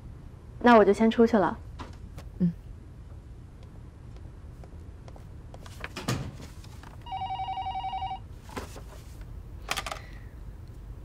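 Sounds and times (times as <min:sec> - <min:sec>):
magazine pages rustling: 0:05.6 - 0:07.0, 0:08.4 - 0:09.3
telephone warbling ring: 0:07.1 - 0:08.2.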